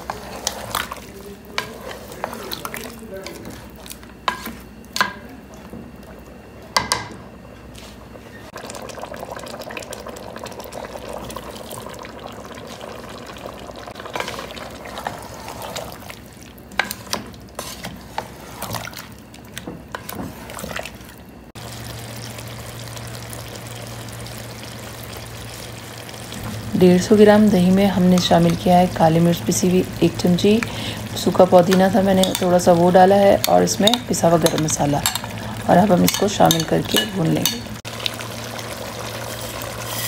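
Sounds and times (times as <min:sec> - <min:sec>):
steady low hum: 0:00.0 - 0:37.9
food sizzling and bubbling in a pot: 0:00.0 - 0:40.0
spoon scraping against a pot: 0:16.8 - 0:18.8, 0:31.7 - 0:37.6, 0:39.3 - 0:40.0.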